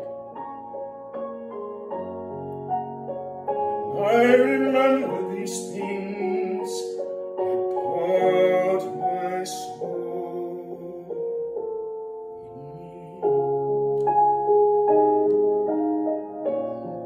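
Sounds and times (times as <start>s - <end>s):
slow piano: 0.0s - 17.0s
man singing: 3.8s - 11.4s, 12.4s - 13.7s, 16.5s - 17.0s.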